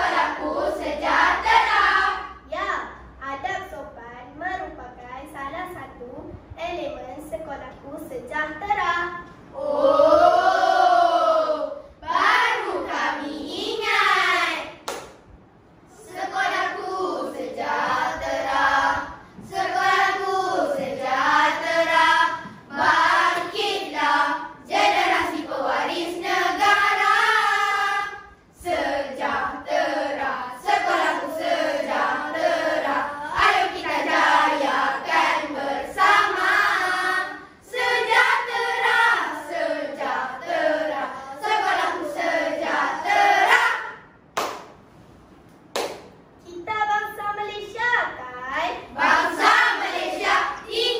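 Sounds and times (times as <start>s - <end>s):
children's choir singing: 0.0s - 2.5s, 9.5s - 14.8s, 15.9s - 44.1s, 48.9s - 50.9s.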